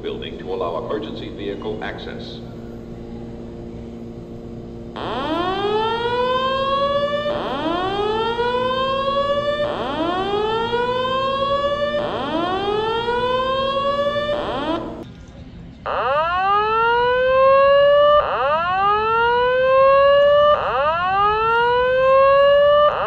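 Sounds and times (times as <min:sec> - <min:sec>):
upward sweeping alarm tone: 0:05.0 - 0:15.0, 0:15.9 - 0:23.0.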